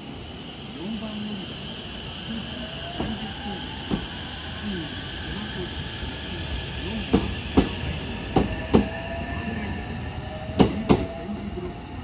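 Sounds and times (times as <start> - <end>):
train rumble: 0.0 - 12.0
train wheels clacking over rail joint: 7.1 - 8.9, 10.5 - 11.1.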